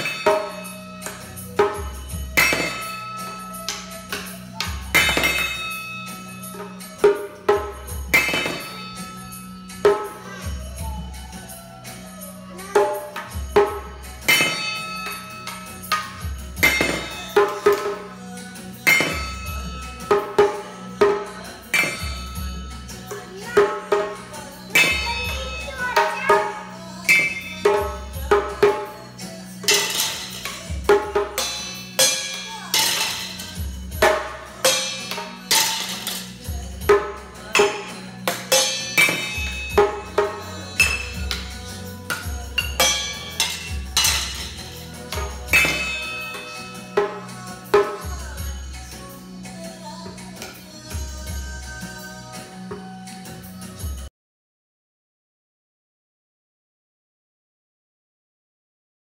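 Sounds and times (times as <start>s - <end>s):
sticks clanging on steel pots: 0.0s - 10.4s, 12.7s - 48.4s
music playing: 0.0s - 54.1s.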